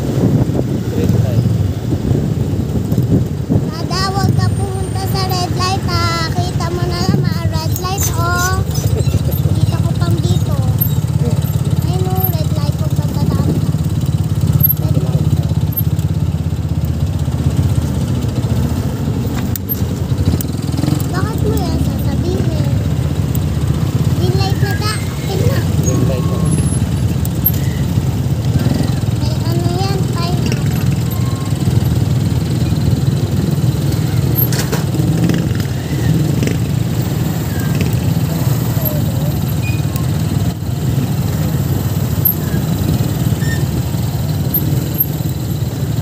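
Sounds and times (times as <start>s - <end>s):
wind noise on microphone: 0.0s - 11.2s
small motorcycle engine running: 0.1s - 46.0s.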